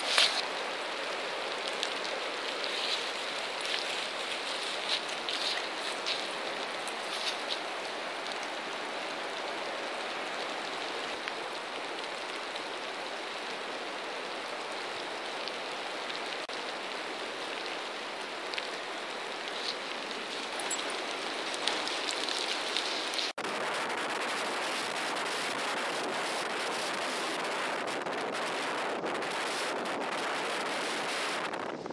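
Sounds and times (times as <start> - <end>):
steady rain falling: 0.0 - 31.9
wind on microphone: 19.8 - 31.9.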